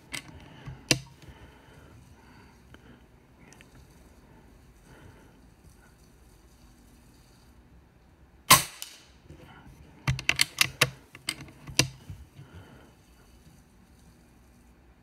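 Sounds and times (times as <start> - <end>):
air rifle shot: 8.5 - 9.2.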